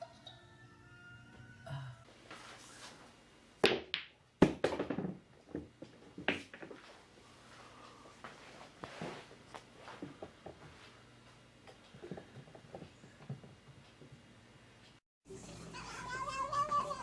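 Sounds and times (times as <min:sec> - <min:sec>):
billiard balls clacking: 0:03.6 - 0:07.0.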